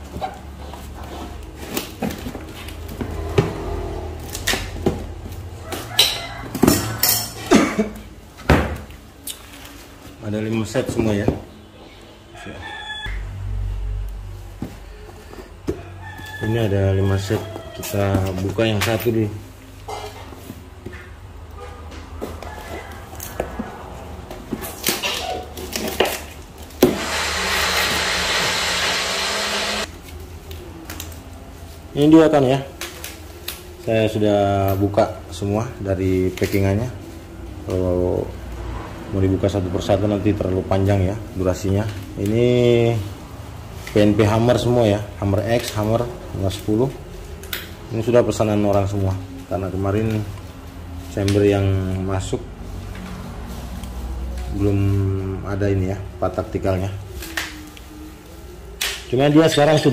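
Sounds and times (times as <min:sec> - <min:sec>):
packaging rustling: 0:09.3 - 0:10.2.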